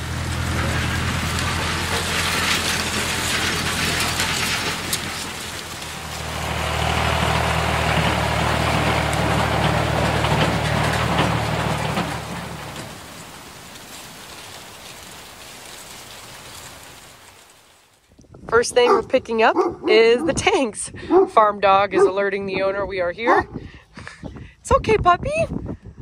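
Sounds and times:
tractor engine running: 0.0 - 19.8
hissing rattle: 0.9 - 17.8.

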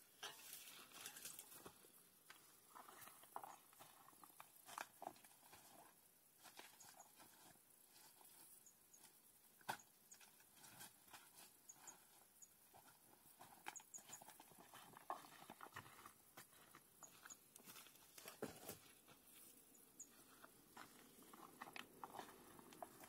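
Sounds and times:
footsteps through dry brush: 9.7 - 23.0.

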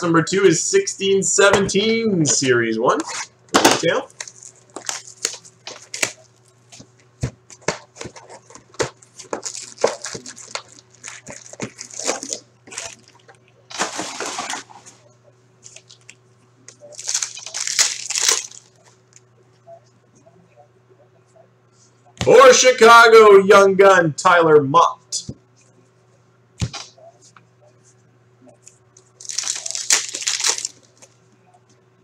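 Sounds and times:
foil pack tearing and crinkling: 4.2 - 6.2, 9.2 - 14.6, 16.9 - 18.8, 29.2 - 31.1
clicks and rustles of packs: 29.2 - 31.1.

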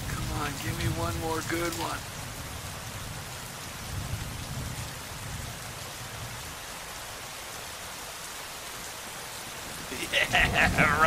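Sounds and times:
low rumble of thunder: 0.0 - 6.6, 10.2 - 11.0
heavy rain on street: 0.0 - 11.0.

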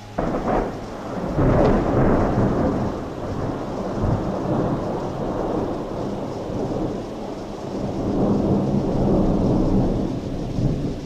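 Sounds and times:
thunder rumbling: 0.0 - 11.0.

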